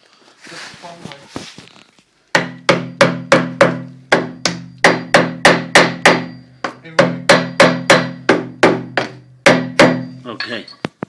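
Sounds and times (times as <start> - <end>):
sharp ringing knocks: 2.4 - 10.9.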